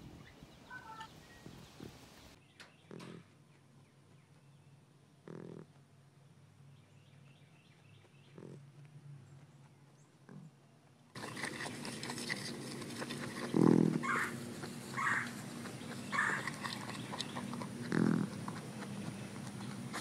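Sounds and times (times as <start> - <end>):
animals chewing and rustling: 7.6 - 20.0
deep grunt-like calls: 11.2 - 20.0
higher animal calls: 11.2 - 20.0.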